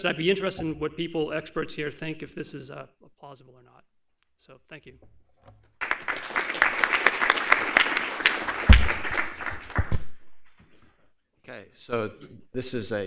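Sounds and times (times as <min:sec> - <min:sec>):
audience applauding: 0:05.8 - 0:10.2.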